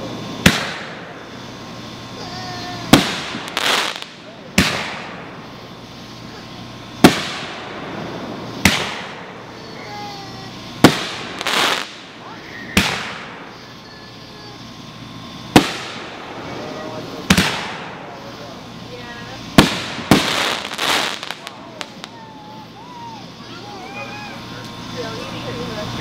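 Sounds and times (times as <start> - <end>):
firework booms with echo: 0.0 - 1.2, 2.8 - 5.5, 6.3 - 10.1, 10.8 - 13.6, 15.5 - 18.2, 19.5 - 22.2
firework hiss and crackle: 0.0 - 26.0.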